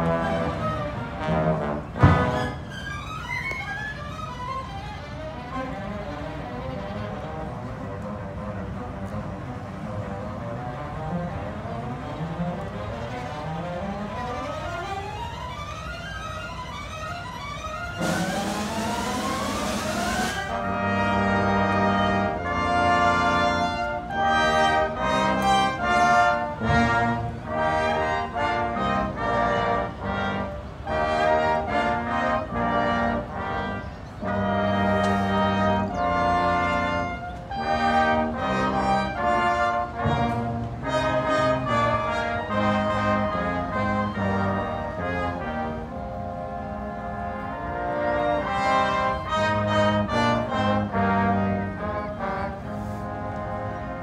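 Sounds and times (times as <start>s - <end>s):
brass section playing chords: 0.0s - 2.8s, 17.8s - 54.0s.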